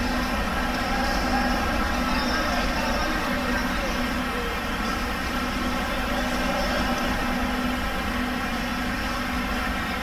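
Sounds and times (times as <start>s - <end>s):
droning hall hum: 0.0s - 10.0s.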